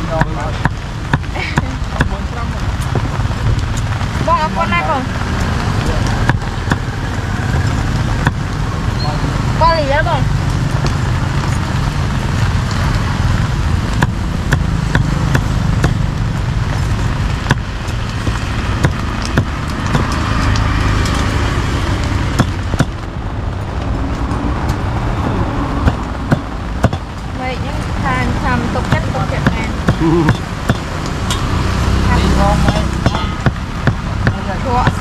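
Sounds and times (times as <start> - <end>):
low traffic rumble: 0.0 - 35.0
cleaver chopping on wooden block: 14.0 - 16.0, 18.8 - 20.2, 22.4 - 23.0, 25.8 - 27.1, 28.9 - 30.9.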